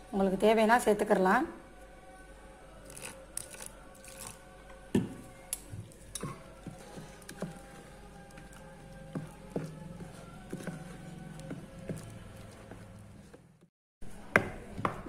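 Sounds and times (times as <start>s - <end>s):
spoon stirring batter: 5.5s - 13.6s.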